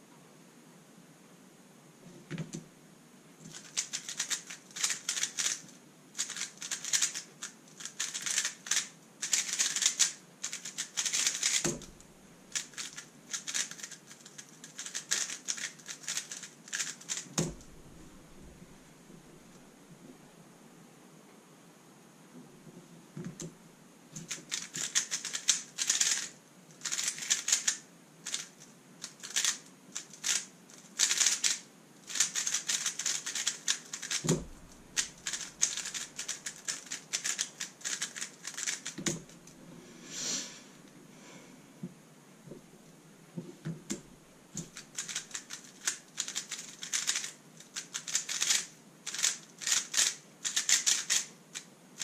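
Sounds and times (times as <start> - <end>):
puzzle cube layers clattering: 3.5 - 17.7, 24.2 - 39.1, 44.6 - 51.3
dull thumps: 34.3 - 34.8.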